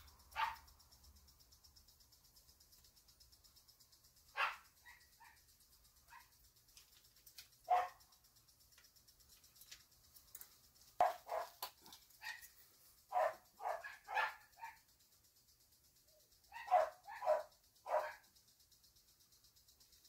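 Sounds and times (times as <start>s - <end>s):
dog barking: 0.3s - 0.7s, 4.3s - 5.4s, 6.1s - 6.4s, 7.7s - 8.0s, 11.0s - 11.6s, 12.2s - 12.5s, 13.1s - 14.8s, 16.5s - 18.3s.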